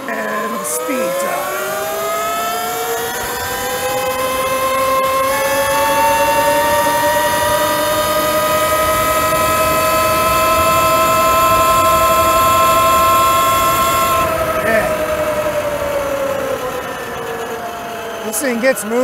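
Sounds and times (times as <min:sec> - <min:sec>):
electric motor whining: 0:00.0 - 0:19.0.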